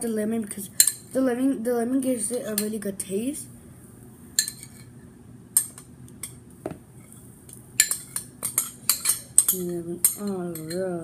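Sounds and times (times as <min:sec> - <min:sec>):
metal spoon clinking on ceramic bowl: 0:07.8 - 0:10.9.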